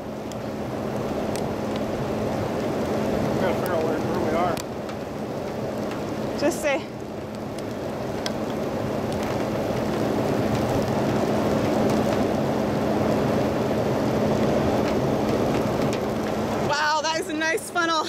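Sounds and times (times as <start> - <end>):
muffled rain: 0.0 - 18.0.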